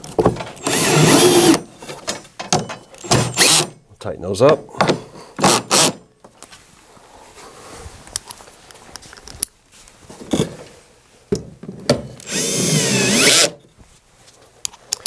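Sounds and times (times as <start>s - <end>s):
cordless drill running: 0.6s - 1.6s, 12.2s - 13.6s.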